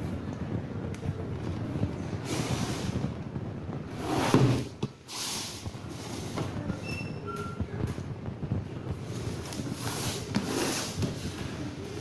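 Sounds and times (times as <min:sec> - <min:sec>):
low background rumble: 0:00.0 - 0:09.8
cardboard rubbing and sliding: 0:03.9 - 0:06.7, 0:09.0 - 0:11.8.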